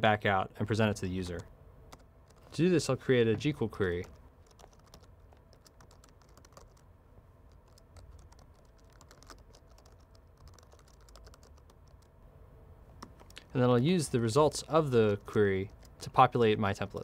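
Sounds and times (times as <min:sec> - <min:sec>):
keyboard typing: 0:01.2 - 0:02.6, 0:03.3 - 0:06.9, 0:07.5 - 0:12.1, 0:13.0 - 0:13.5, 0:14.5 - 0:16.1.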